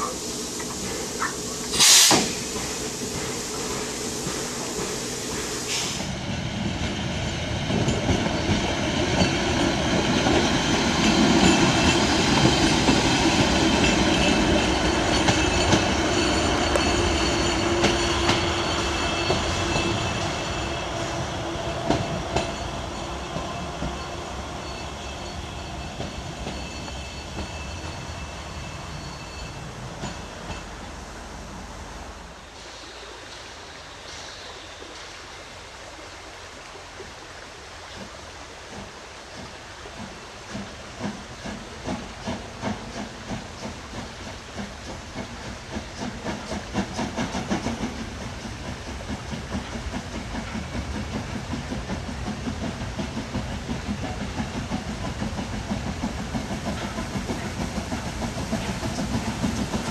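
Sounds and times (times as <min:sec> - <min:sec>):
diesel railcar engine running: 0:00.0 - 0:33.1, 0:38.6 - 0:59.9
high wheel squeal: 0:14.4 - 0:30.4
wheels clicking over rail joints: 0:37.8 - 0:59.9.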